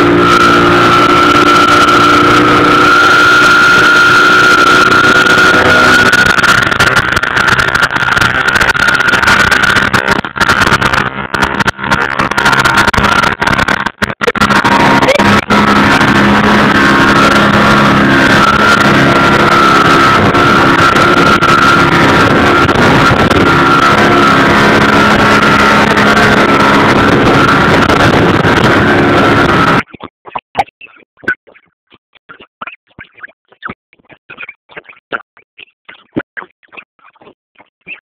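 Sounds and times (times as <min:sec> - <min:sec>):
outboard motor running: 0:00.0 - 0:30.0
wind: 0:00.0 - 0:33.0.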